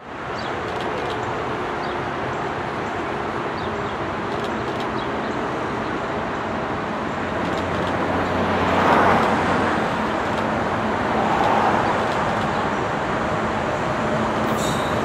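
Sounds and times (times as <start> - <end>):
locomotive engines droning: 0.0 - 15.0
wheel and rail noise: 0.0 - 15.0.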